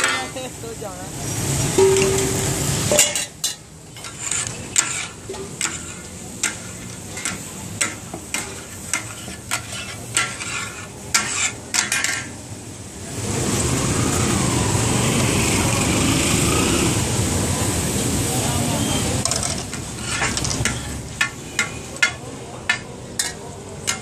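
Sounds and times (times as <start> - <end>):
sizzling frying: 0.0 - 24.0
metal spatulas striking griddle: 1.8 - 12.4, 19.3 - 24.0.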